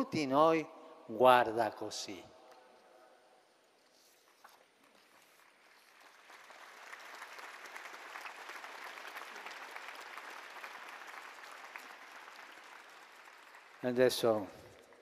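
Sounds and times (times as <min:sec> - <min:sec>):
large crowd applauding: 0:04.9 - 0:15.0.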